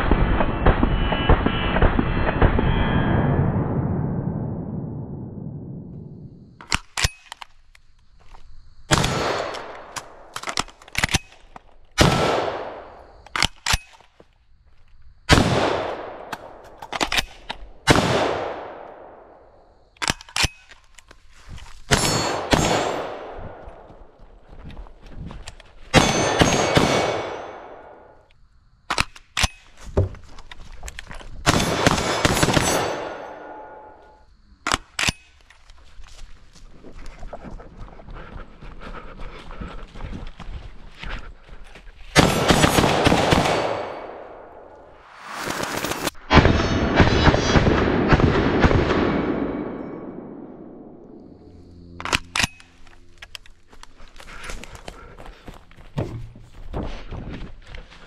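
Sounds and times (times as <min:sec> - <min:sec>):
rifle shots with echo: 0:08.9 - 0:10.3, 0:12.0 - 0:13.0, 0:15.3 - 0:16.6, 0:17.8 - 0:19.4, 0:21.9 - 0:23.6, 0:25.9 - 0:28.1, 0:31.5 - 0:33.9, 0:42.2 - 0:44.7, 0:46.3 - 0:51.1.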